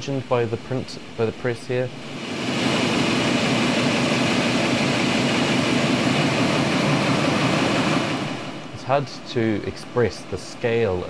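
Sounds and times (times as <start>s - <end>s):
printing press running: 2.1s - 8.8s.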